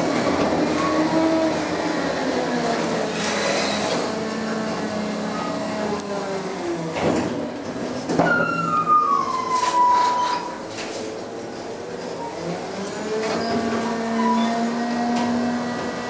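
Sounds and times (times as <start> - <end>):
metal squeal falling in pitch: 8.2 - 10.6.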